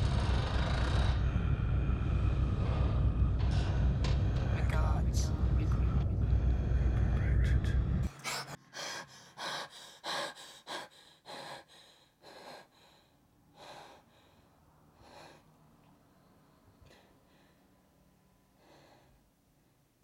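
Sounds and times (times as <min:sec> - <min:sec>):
woman gasping breaths: 0:08.1 - 0:15.5.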